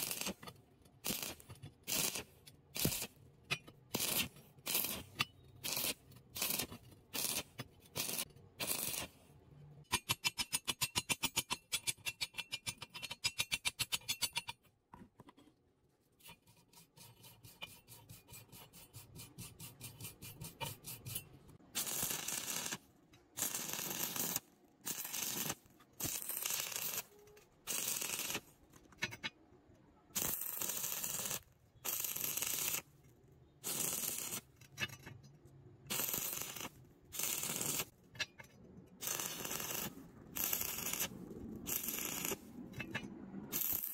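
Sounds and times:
welding arc crackling: 1.0 - 3.1, 3.9 - 9.1, 21.8 - 22.8, 23.4 - 27.1, 27.7 - 28.4, 30.2 - 32.8, 33.6 - 34.4, 35.9 - 37.9, 39.0 - 41.1, 41.7 - 42.4, 43.5 - 43.9
wire brush scrubbing metal: 16.2 - 21.4.

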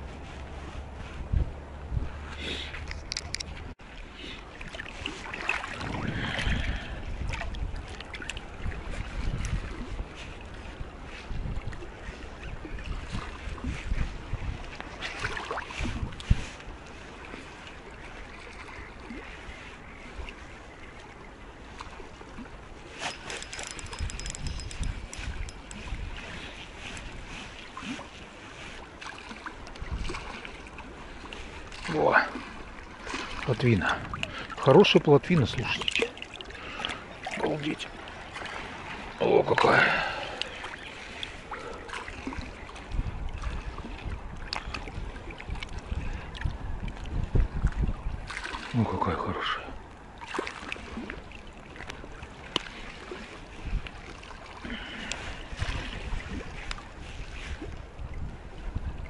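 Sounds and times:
wind on microphone: 0.0 - 3.9, 4.5 - 33.1, 37.9 - 50.2, 50.8 - 59.0
water lapping: 0.0 - 59.0
spinning reel clicking and whining: 23.1 - 25.8.

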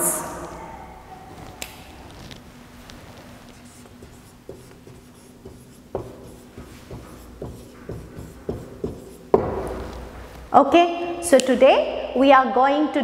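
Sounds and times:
marker pen writing on whiteboard: 3.4 - 10.0
sharp marker tap: 3.7 - 9.2.

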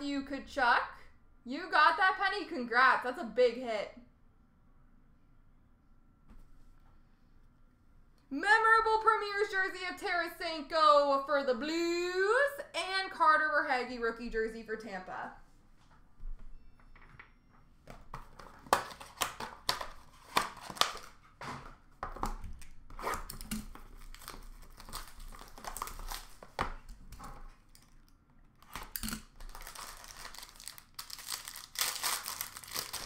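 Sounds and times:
wrapper crinkling and tearing: 18.6 - 21.4, 22.6 - 27.0, 27.7 - 33.0.

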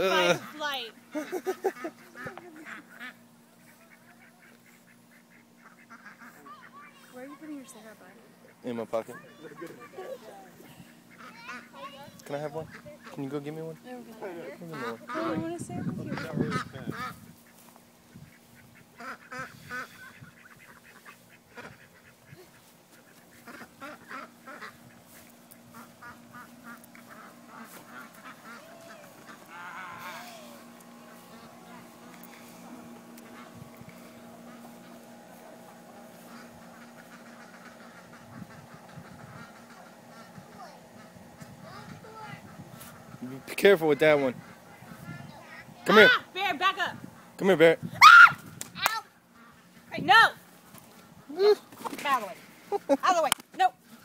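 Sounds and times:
fowl calling: 0.0 - 47.4, 48.0 - 53.2
chickens clucking: 0.0 - 47.7, 49.1 - 54.0
faint steady hum: 0.0 - 54.0.

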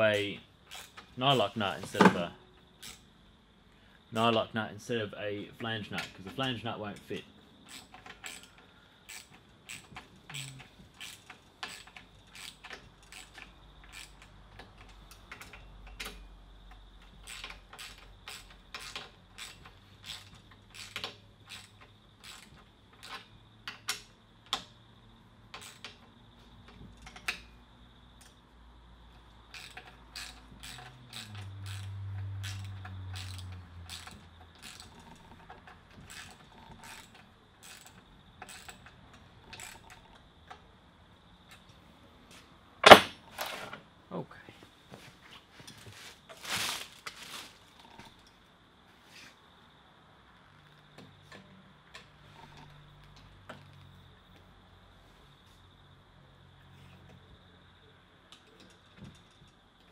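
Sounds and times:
ratchet clicking: 0.6 - 1.4, 2.7 - 3.1, 7.6 - 24.7, 25.5 - 26.0, 29.5 - 40.0.

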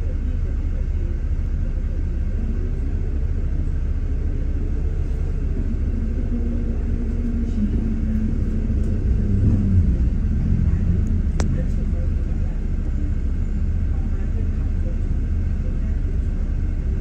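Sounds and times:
bus engine rumbling: 0.0 - 17.0.

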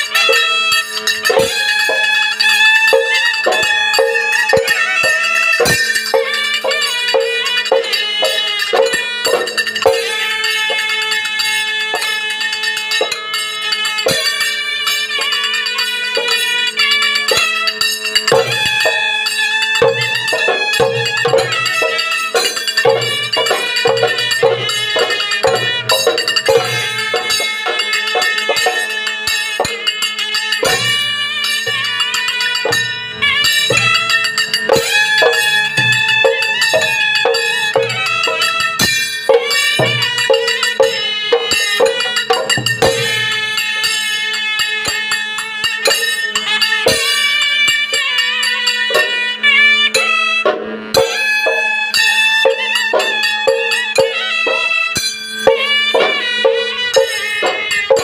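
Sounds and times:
small hand cymbals clashing: 0.0 - 58.0
wind instrument melody: 0.0 - 58.0
large drums beaten: 0.1 - 13.2, 14.1 - 17.6, 18.3 - 30.0, 30.6 - 44.3, 49.8 - 58.0
steady held low drone: 30.6 - 43.7.

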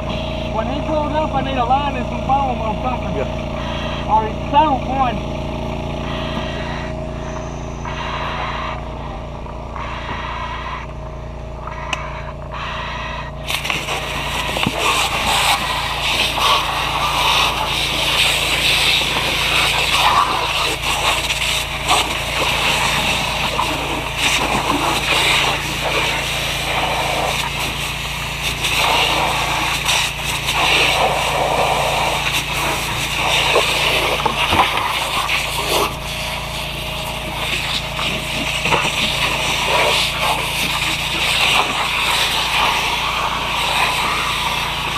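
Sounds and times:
engine idling: 0.0 - 44.9
hose water spraying: 12.6 - 44.9.

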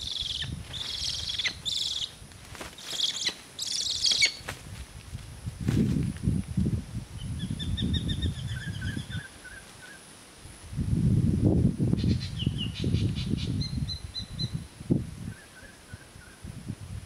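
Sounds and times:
bird whistling calls: 0.0 - 2.1, 3.0 - 4.4
wind buffeting microphone: 0.0 - 2.6, 4.4 - 9.4, 10.6 - 17.0.

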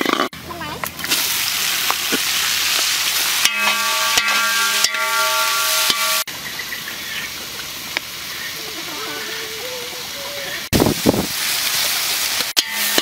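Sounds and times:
greens sizzling in hot oil: 0.5 - 13.0
metal spatula tossing in wok: 3.3 - 6.3, 12.5 - 13.0
steady pitched tone: 3.4 - 6.3.

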